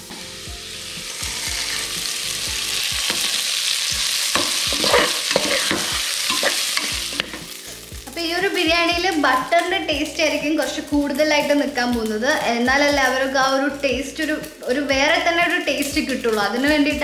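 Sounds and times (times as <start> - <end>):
rice sizzling in butter: 0.0 - 17.0
metal spoon scraping a pot: 4.3 - 7.6.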